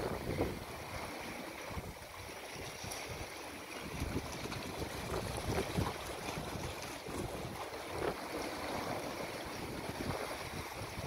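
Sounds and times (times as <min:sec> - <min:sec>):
waves lapping against rocks: 0:00.0 - 0:11.0.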